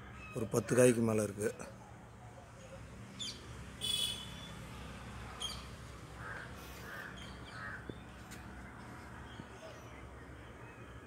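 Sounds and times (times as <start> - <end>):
crow cawing: 6.2 - 8.0.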